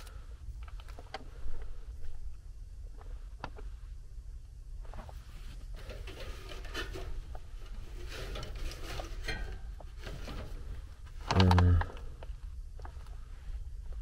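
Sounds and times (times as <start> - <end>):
low steady hum: 0.0 - 14.0
hand rubbing sheet metal: 5.2 - 11.3.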